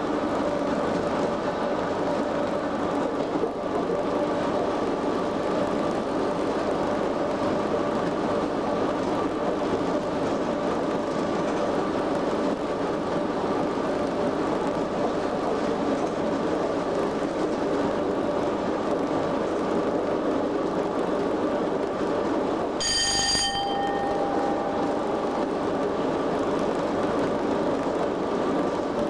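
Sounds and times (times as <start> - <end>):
train wheels on rail: 0.0 - 29.0
bell-like ring: 22.8 - 25.7.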